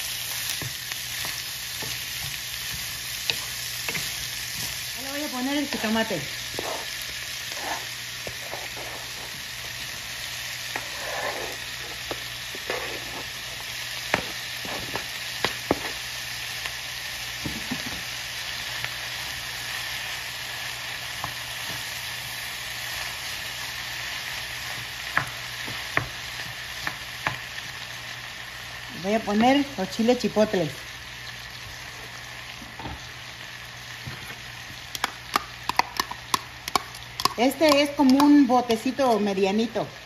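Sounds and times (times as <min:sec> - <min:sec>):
food sizzling in a skillet: 0:00.0 - 0:40.0
utensils scraping a pan: 0:06.4 - 0:09.6, 0:10.7 - 0:15.1.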